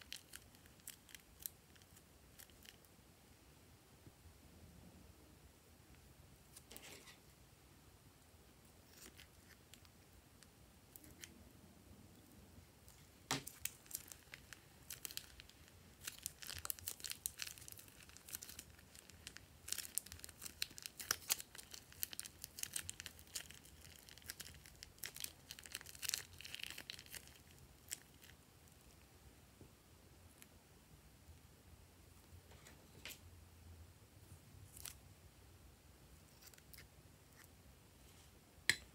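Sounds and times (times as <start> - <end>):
slime crackling and popping: 0.0 - 2.8, 12.9 - 28.4.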